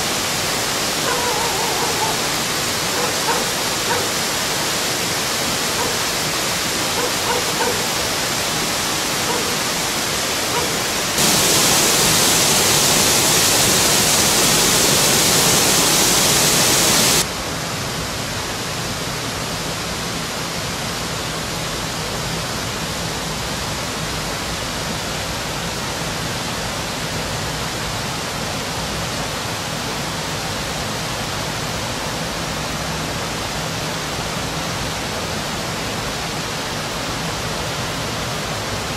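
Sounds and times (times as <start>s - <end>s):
rushing torrent water: 0.0s - 38.9s.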